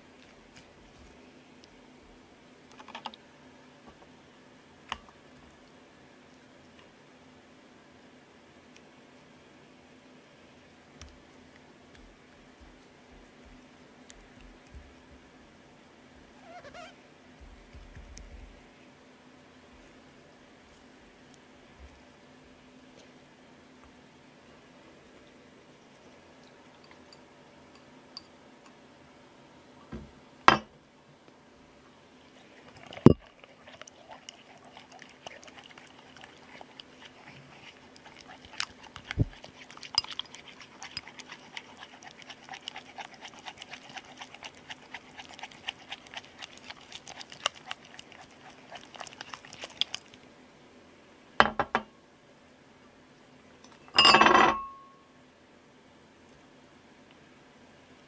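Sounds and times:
stick stirring slime in bowl: 0:11.0 - 0:15.4, 0:17.4 - 0:18.6, 0:32.3 - 0:50.2
bowl clunking on glass table: 0:30.5 - 0:30.7, 0:51.4 - 0:51.9, 0:54.0 - 0:54.8.

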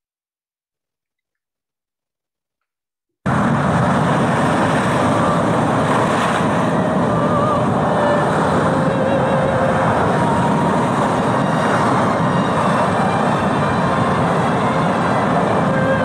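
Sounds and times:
wind: 0:03.2 - 0:16.0
storm surf roaring: 0:03.3 - 0:16.0.

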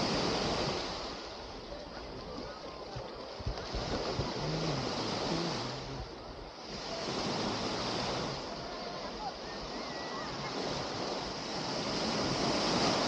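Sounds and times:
small waves washing on shore: 0:00.0 - 0:13.0.

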